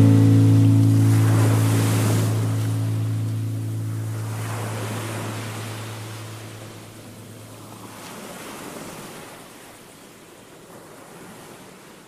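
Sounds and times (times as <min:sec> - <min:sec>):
low steady hum: 0:00.0 - 0:07.9
sea surf hissing: 0:00.0 - 0:09.0.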